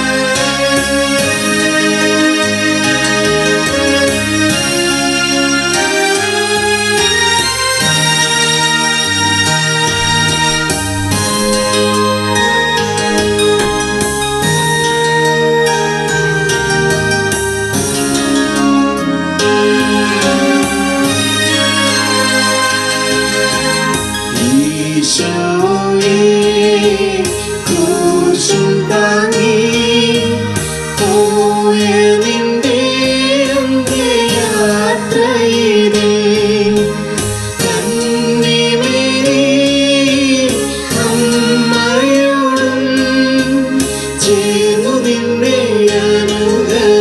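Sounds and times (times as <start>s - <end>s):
sustained instrumental accompaniment: 0.0s - 47.0s
person singing with vibrato: 24.3s - 47.0s.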